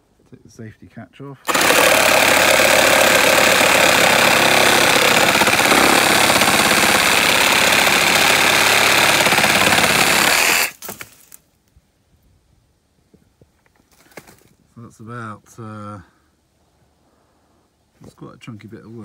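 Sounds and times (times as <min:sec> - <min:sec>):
reciprocating saw cutting wood: 0:01.5 - 0:10.8.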